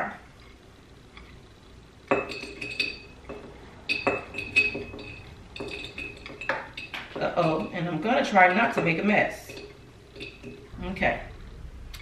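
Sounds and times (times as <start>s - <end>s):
spoon clinking against bowl: 2.1s - 10.7s.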